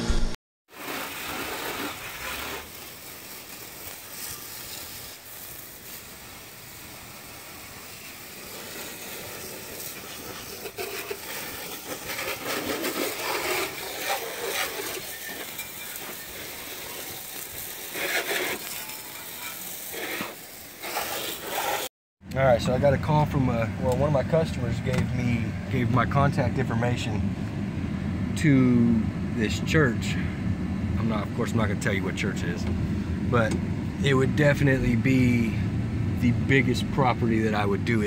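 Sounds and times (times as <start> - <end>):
hose spraying water: 0.7 - 21.9.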